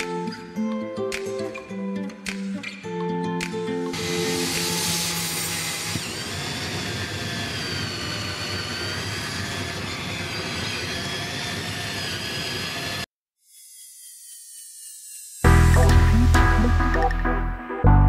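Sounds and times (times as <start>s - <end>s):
drill cutting particleboard: 3.9s - 15.5s.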